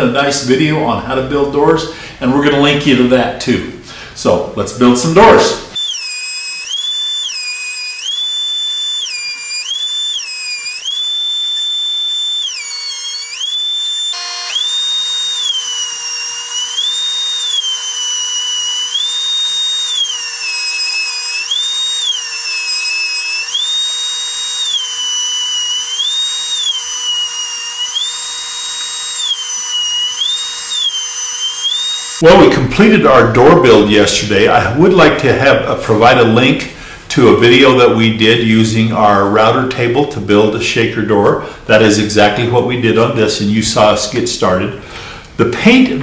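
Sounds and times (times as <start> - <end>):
router whining under load: 5.7 - 32.3.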